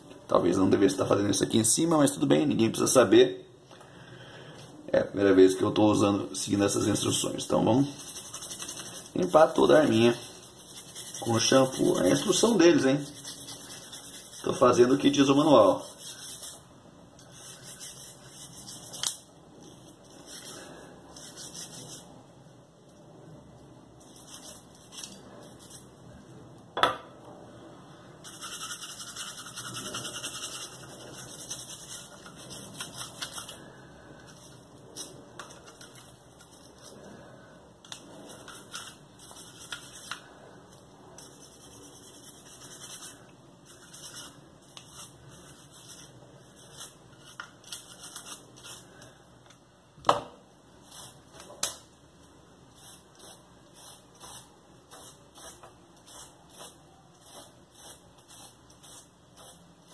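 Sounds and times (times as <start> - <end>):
scratchy rubbing: 7.8 - 16.6, 17.2 - 22.1, 28.3 - 33.6, 38.1 - 40.2, 41.2 - 48.9.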